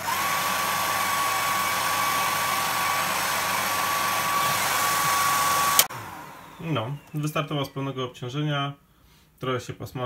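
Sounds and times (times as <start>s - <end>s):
hair dryer running: 0.0s - 7.5s.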